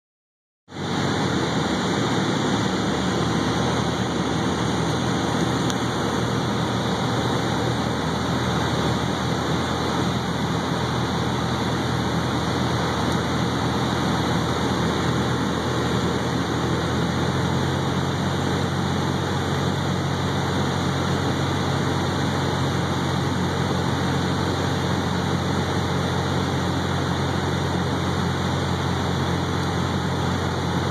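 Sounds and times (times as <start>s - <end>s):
light plane engine drone: 0.7s - 30.9s
rush of air noise: 0.7s - 30.9s.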